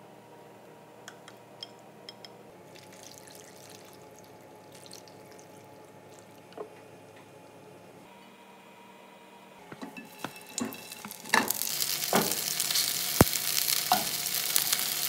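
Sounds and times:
broth trickling and dripping: 2.6 - 6.6.

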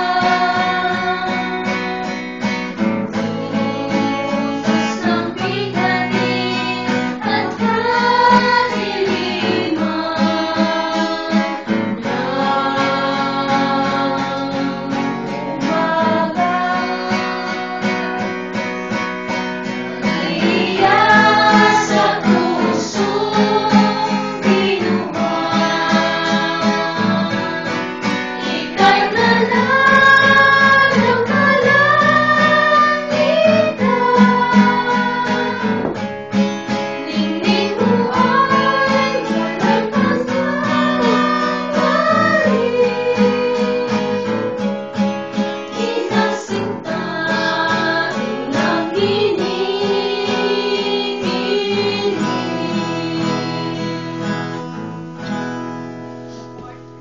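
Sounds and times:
person singing: 0.0 - 2.2, 3.0 - 18.4, 19.9 - 36.0, 37.0 - 44.9, 45.7 - 54.6
strummed acoustic guitar: 0.0 - 57.0.

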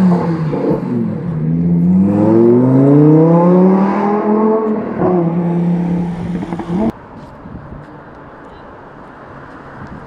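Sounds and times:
sports car engine accelerating: 0.0 - 6.9.

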